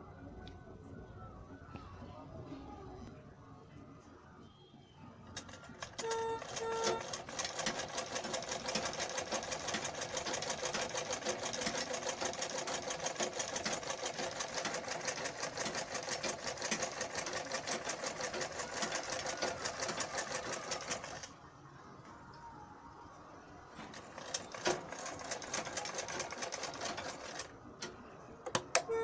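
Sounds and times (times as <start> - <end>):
sewing machine needle clattering: 5.4 - 21.3, 23.9 - 27.9.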